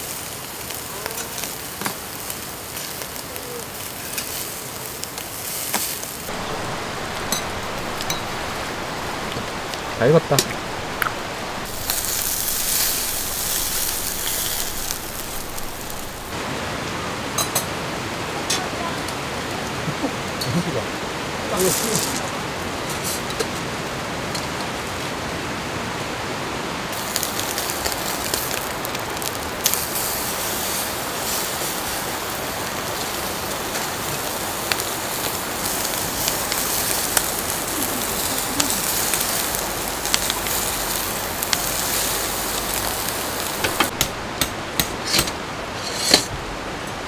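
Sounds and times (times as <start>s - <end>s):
meat sizzling on a grill: 0.0s - 16.4s, 21.5s - 22.3s, 26.9s - 46.3s
wood fire crackling and popping: 0.0s - 16.4s, 26.9s - 46.4s
water rushing: 0.0s - 47.0s.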